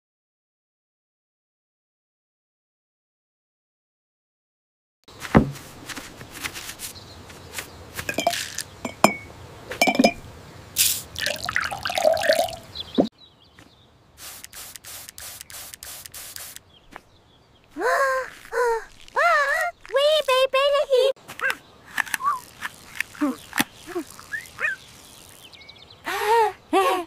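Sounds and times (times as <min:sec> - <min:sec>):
spray bottle squirts: 0:10.8 - 0:12.6, 0:14.2 - 0:16.6, 0:21.9 - 0:25.4
cartoon liquid pouring and trickling: 0:10.8 - 0:12.7
liquid drips: 0:11.0 - 0:12.7
small clicks: 0:14.4 - 0:16.6, 0:21.4 - 0:25.5.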